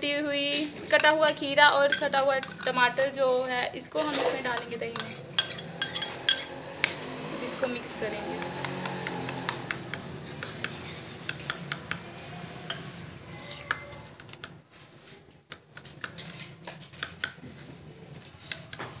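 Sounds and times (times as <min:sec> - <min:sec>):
spoon clinking in glass bowl: 0:01.0 - 0:03.2, 0:04.6 - 0:06.6.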